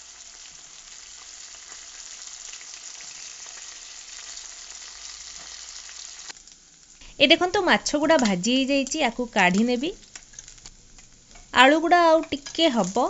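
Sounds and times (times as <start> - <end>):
fish and potatoes sizzling in oil: 0.0 - 13.0
spatula stirring: 9.5 - 13.0.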